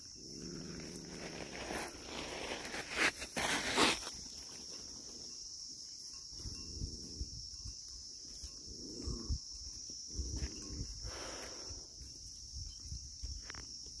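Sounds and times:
high-pitched insect drone: 0.0s - 14.0s
footsteps on stony ground: 1.0s - 4.6s.

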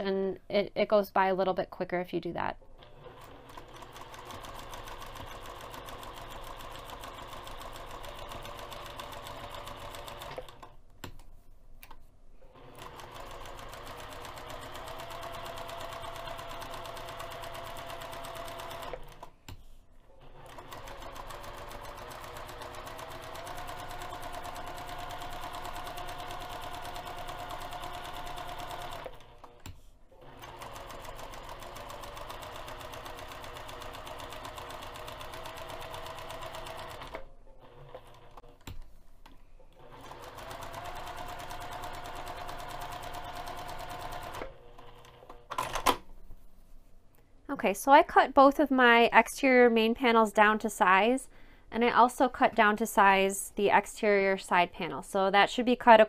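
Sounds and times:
sewing machine stitching: 2.8s - 10.8s, 12.4s - 38.8s, 39.7s - 46.0s.

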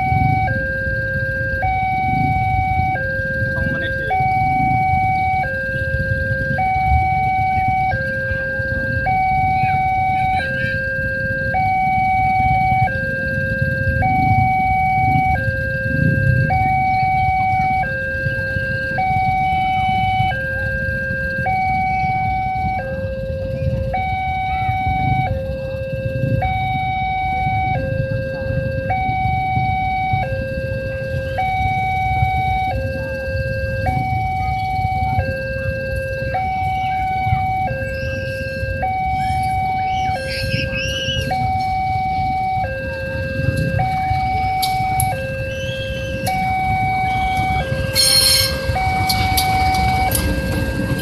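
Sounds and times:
two-tone level crossing alarm: 0.0s - 51.0s.

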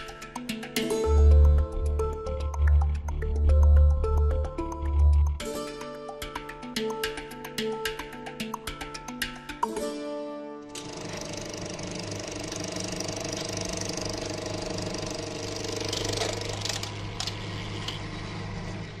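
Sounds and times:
music: 0.0s - 19.0s
film projector whirring and clattering: 10.7s - 19.0s.

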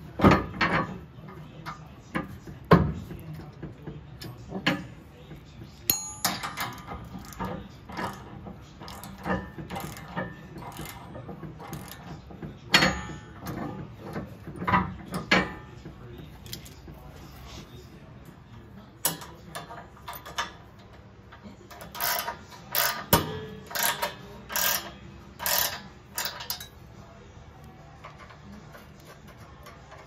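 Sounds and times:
short metallic ring: 5.9s - 6.7s.

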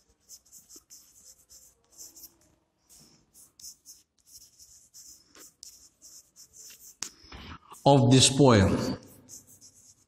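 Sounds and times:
chalk scratching on blackboard: 0.0s - 10.0s.

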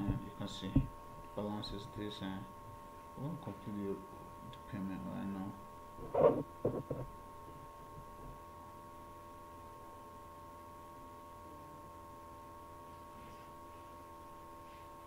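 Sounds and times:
steady electrical hum: 0.0s - 15.0s.

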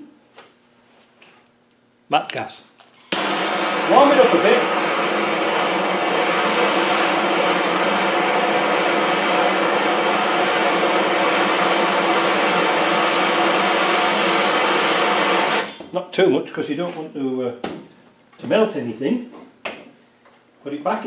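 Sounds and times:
gas torch hissing: 3.0s - 15.8s.

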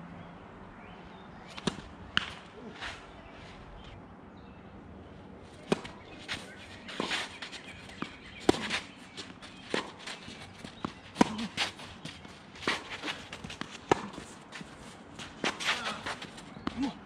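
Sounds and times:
racket hitting ball: 1.5s - 2.5s, 5.6s - 16.9s
shoes scuffing on court: 5.5s - 17.0s.

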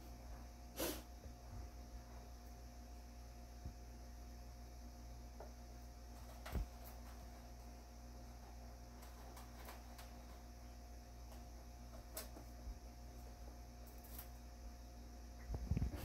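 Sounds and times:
steady low hum: 0.0s - 16.0s
kitten scratching in cat litter: 5.7s - 14.6s.

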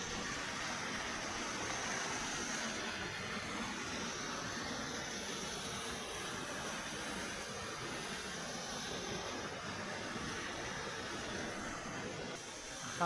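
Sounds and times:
waterfall rushing over rocks: 0.0s - 13.0s.

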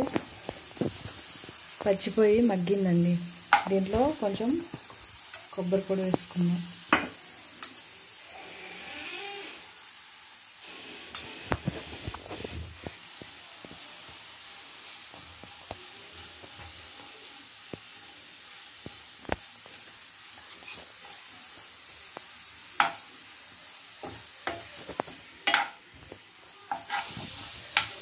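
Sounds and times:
food sizzling in oil: 0.0s - 28.0s
spatula clicking and scraping pan: 3.4s - 5.5s, 15.1s - 23.1s, 24.0s - 28.0s.

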